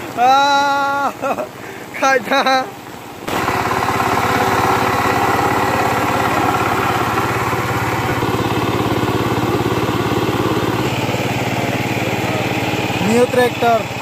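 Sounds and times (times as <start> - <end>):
power tiller engine running: 3.3 - 14.0.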